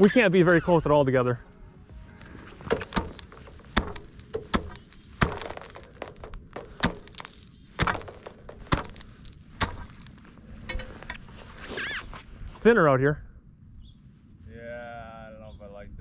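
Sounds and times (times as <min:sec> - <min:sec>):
lake ice cracking underfoot: 0:02.3 - 0:10.4.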